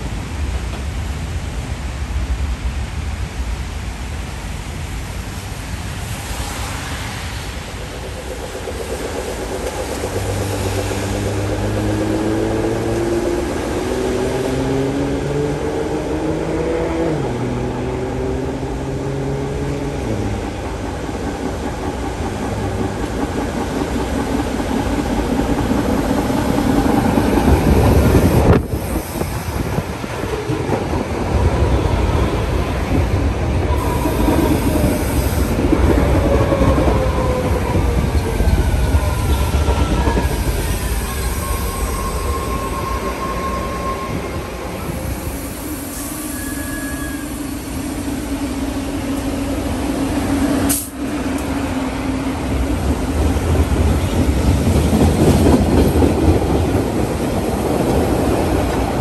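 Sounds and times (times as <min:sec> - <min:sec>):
subway train electric drive whining: 0:00.0 - 0:59.0.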